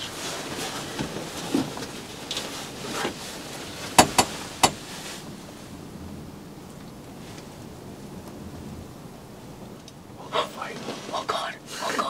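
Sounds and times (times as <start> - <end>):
rustling handling noise: 0.0 - 5.7, 9.7 - 11.6.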